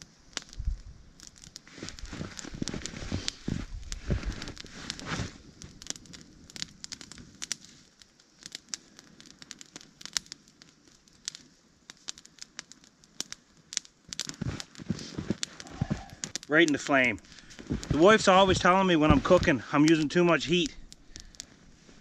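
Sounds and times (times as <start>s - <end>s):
fire crackling and popping: 0.0s - 22.0s
rustle of sticks moved: 1.6s - 5.7s, 14.2s - 20.3s.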